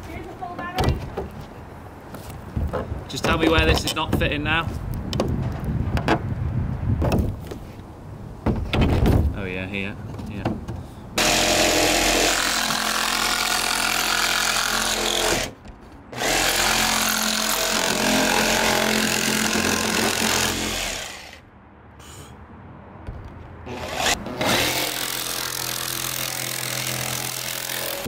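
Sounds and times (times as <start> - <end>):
jigsaw cutting: 11.2 - 15.5, 16.2 - 21.4, 23.7 - 28.0.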